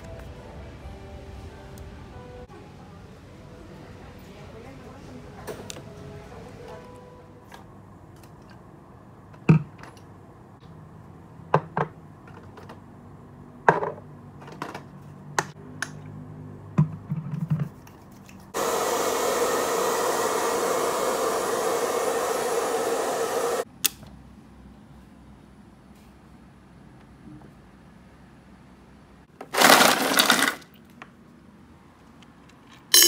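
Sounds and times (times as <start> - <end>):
small electric appliance running: 18.6 - 23.6.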